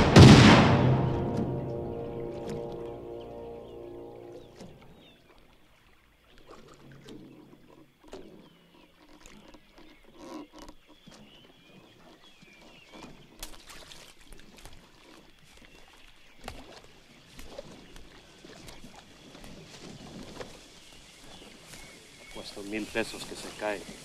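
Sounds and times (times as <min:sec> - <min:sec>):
birds chirping and calling: 0:00.8 - 0:05.3, 0:17.6 - 0:24.0
light water splashes: 0:04.0 - 0:24.0.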